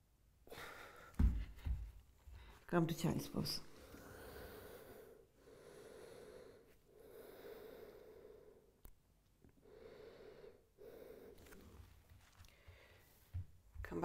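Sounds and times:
person breathing faintly: 0:03.6 - 0:08.8, 0:09.6 - 0:13.4.

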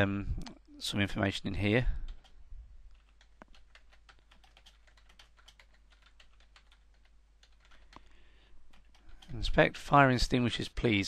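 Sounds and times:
typing on computer keyboard: 0:02.1 - 0:08.1, 0:08.7 - 0:09.4.

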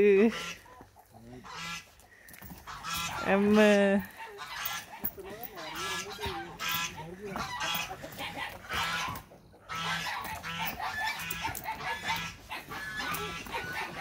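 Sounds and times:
hens squawking and clucking: 0:00.0 - 0:14.0.

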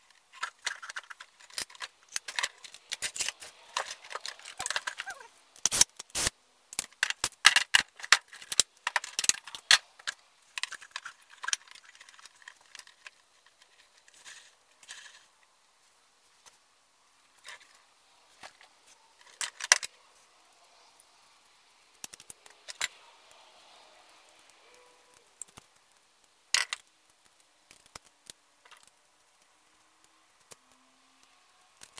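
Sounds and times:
small tools rattling on workbench: 0:00.1 - 0:05.3.

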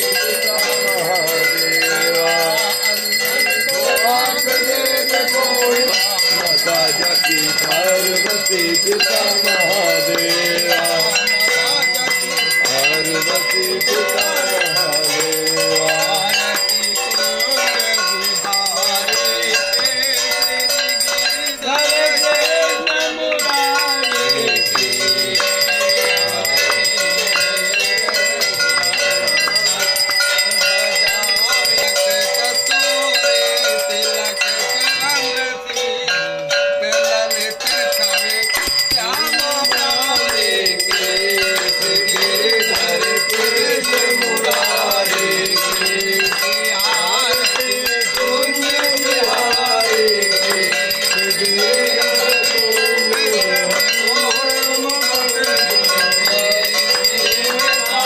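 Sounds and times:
group chanting a hymn: 0:00.0 - 0:34.7, 0:37.0 - 0:58.0
hand bells ringing: 0:00.0 - 0:58.0.

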